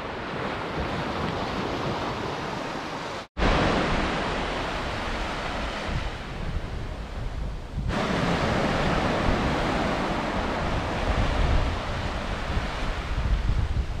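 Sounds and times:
surf on beach: 0.0s - 14.0s
wind rumbling on microphone: 0.0s - 14.0s.

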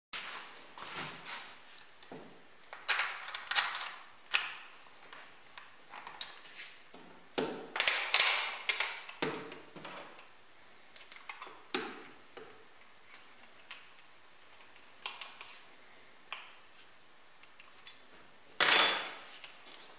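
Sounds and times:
metal parts clicking and scraping: 2.7s - 4.4s.

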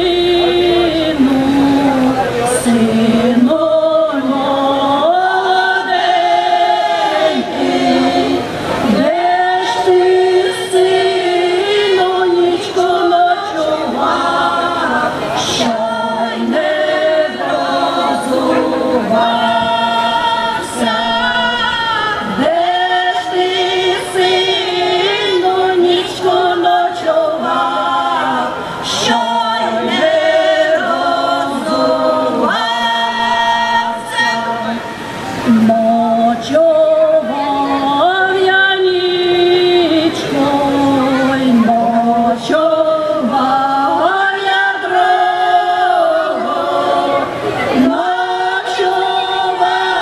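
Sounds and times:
women's choir singing a cappella: 0.0s - 50.0s.

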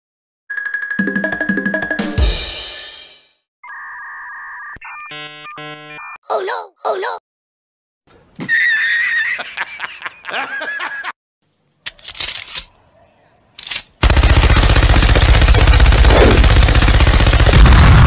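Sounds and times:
man laughing loudly: 8.4s - 11.2s
rapid machine-gun fire: 14.0s - 18.0s.

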